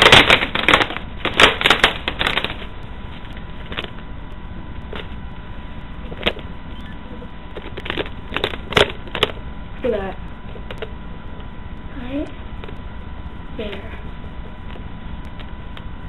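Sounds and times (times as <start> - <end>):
plastic water bottle crinkling: 0.0 - 2.7.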